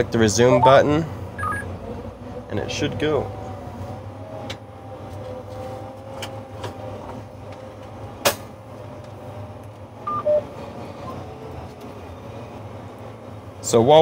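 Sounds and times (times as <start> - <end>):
two-tone beep: 1.4 - 1.6, 10.1 - 10.4.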